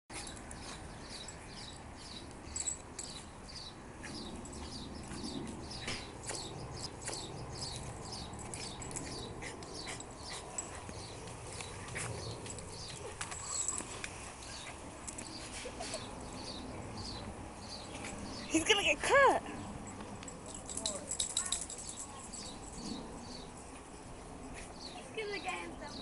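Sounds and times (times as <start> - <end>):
dog rolling on towel and grass: 0.1 - 18.5.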